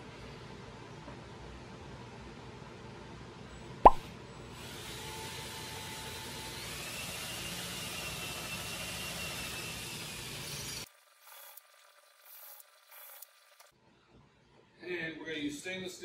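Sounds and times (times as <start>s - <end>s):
cordless drill boring into wood: 4.6s - 13.7s.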